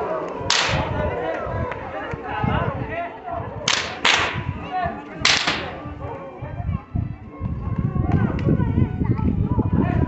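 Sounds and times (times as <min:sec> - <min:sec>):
crowd chatter: 0:00.0 - 0:10.0
rope whips cracking: 0:00.5 - 0:00.9, 0:03.7 - 0:04.4, 0:05.3 - 0:05.8.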